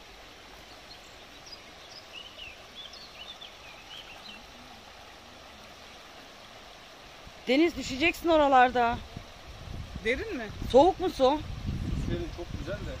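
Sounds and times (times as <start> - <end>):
river running over stones: 0.0 - 13.0
small bird chirping: 0.7 - 4.6.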